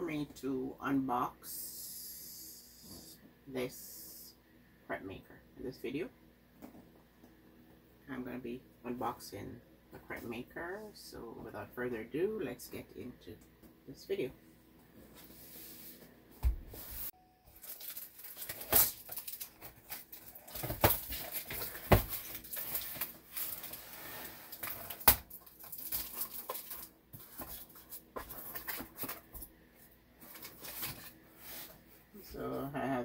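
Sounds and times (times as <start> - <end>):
packaging rustling: 17.5 - 29.5.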